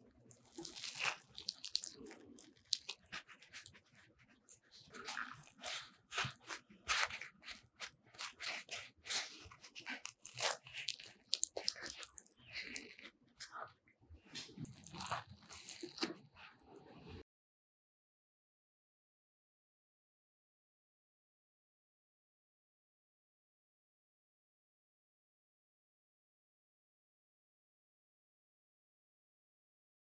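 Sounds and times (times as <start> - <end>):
bread roll crust crackling: 0.0 - 13.1, 14.4 - 16.2.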